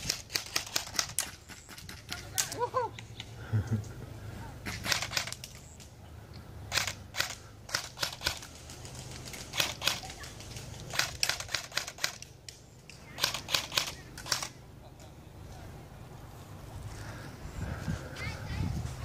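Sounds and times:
airsoft rifle shots: 0.0s - 2.6s, 4.6s - 5.4s, 6.7s - 8.5s, 10.9s - 12.3s, 13.1s - 14.6s.

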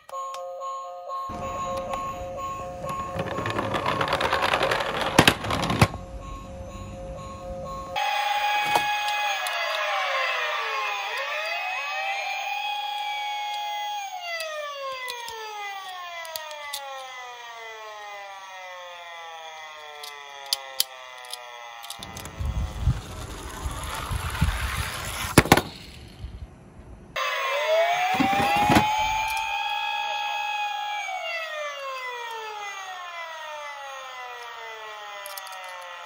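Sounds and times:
police siren wailing: 0.0s - 25.3s, 27.2s - 36.0s
noisy rumble: 22.0s - 27.2s.

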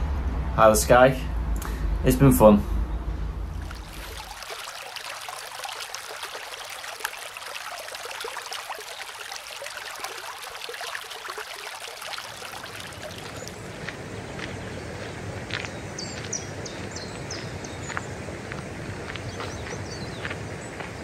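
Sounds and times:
stream babbling over rocks: 3.5s - 17.8s.

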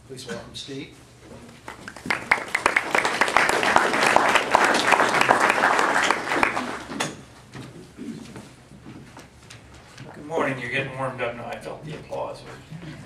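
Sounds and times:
audience applauding: 1.7s - 7.0s.

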